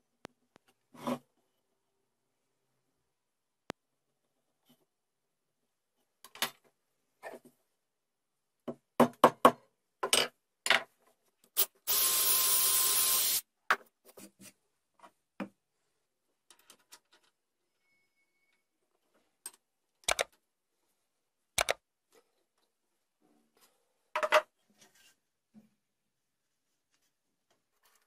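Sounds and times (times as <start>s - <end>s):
cordless drill boring into wood: 11.6s - 13.4s.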